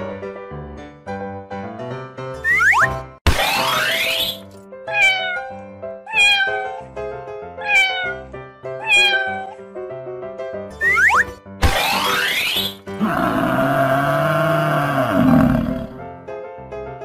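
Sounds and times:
cat meows: 4.9 - 6.9, 7.6 - 9.6.

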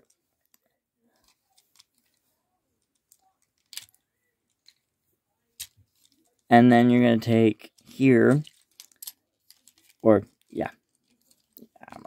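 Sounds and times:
plastic toy joints clicking: 7.7 - 11.6.

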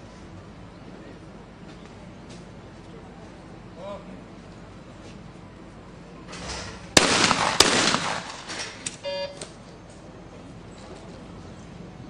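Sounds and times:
shotgun shots: 6.9 - 8.9
short electronic beep: 9.0 - 9.4.

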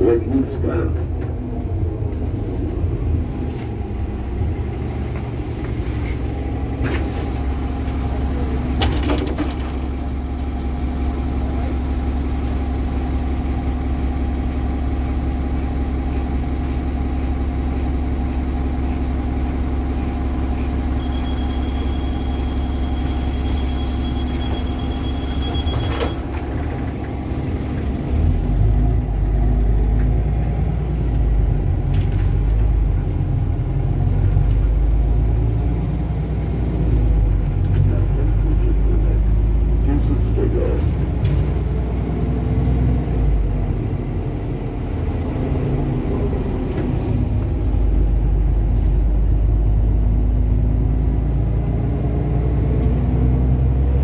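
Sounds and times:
bus engine humming: 0.0 - 54.0
door warning beeper: 20.9 - 26.5.

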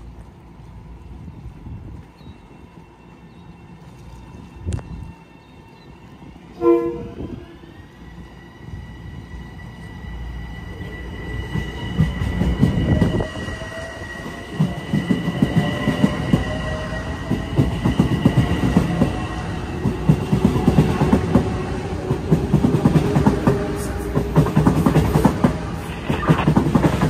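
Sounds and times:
train high whine: 0.0 - 27.0
train low rumble: 0.0 - 27.0.

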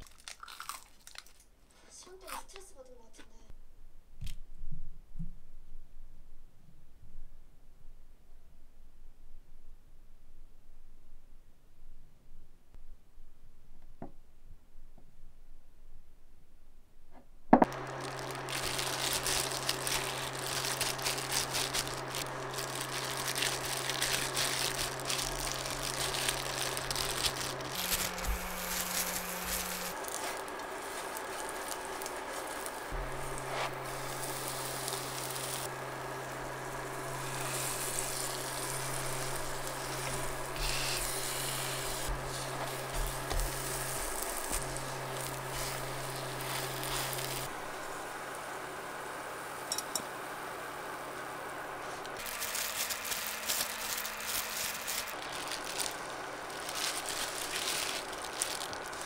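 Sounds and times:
low hum: 3.5 - 50.1
pancakes sizzling in oil: 17.7 - 48.5.

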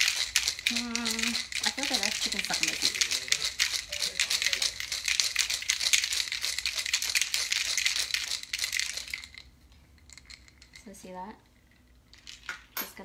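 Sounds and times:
ice rattling in cocktail shaker: 0.0 - 12.8.

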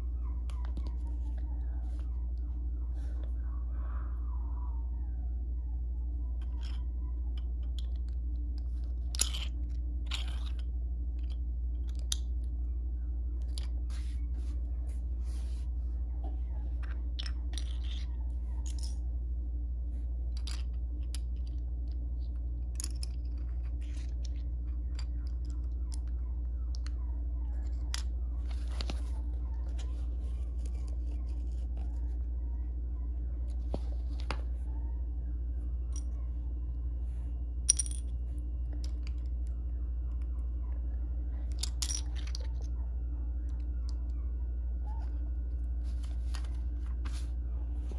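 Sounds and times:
low hum: 0.0 - 47.9
plastic bricks clicking: 7.4 - 12.4.

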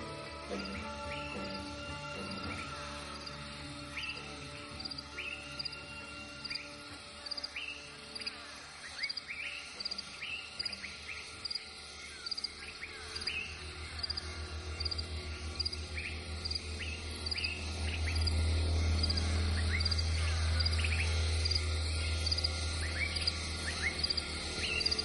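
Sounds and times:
crickets chirping: 0.0 - 25.0
low pulsing throb: 0.0 - 25.0
upward-sweeping chirps: 9.0 - 25.0.

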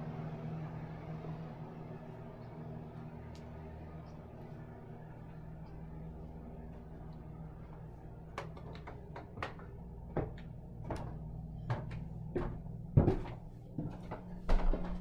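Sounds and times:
steady low hum: 0.0 - 15.0
footsteps on wooden stairs: 9.2 - 15.0.

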